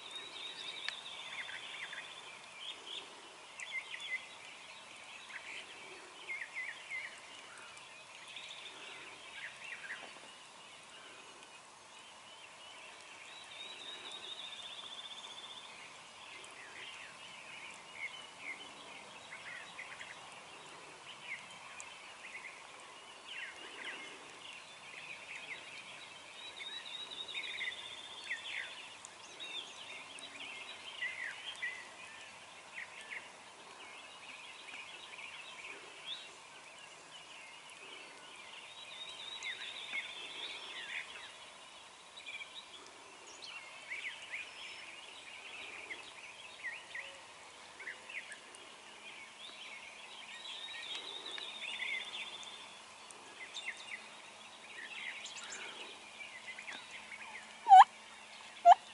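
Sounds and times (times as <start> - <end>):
songbirds singing and chirping: 0.0 - 58.9
turkey gobbling: 57.7 - 57.9.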